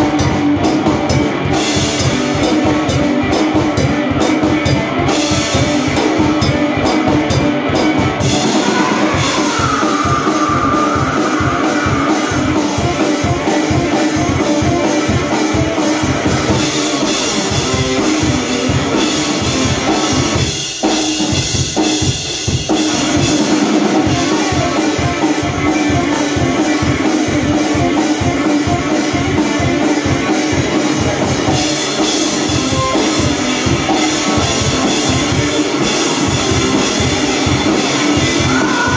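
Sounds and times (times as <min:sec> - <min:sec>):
drum kit beating: 0:00.0 - 0:38.9
electric guitar: 0:00.0 - 0:38.9.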